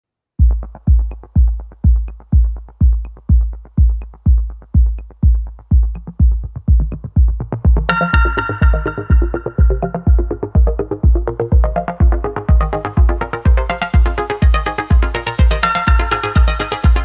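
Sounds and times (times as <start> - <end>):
electronic music: 0.4 - 17.0
heavy kick drum: 0.4 - 17.0.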